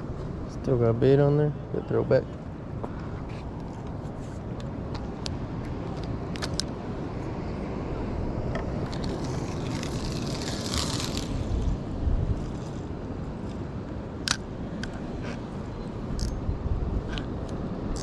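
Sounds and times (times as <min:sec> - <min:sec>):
wind: 0:00.0 - 0:18.0
ocean surf: 0:04.2 - 0:16.2.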